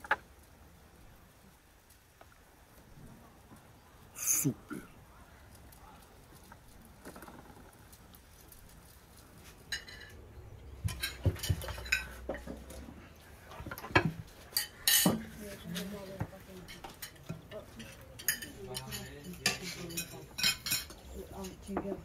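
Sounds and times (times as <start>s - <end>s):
plates and forks clinking: 9.7s - 10.2s, 10.8s - 12.8s, 13.7s - 15.9s, 16.6s - 21.9s.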